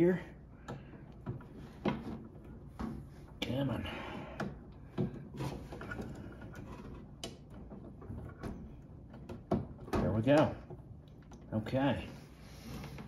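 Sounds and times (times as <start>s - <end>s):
clicks and knocks of hands working: 0.6s - 3.4s, 4.2s - 11.6s.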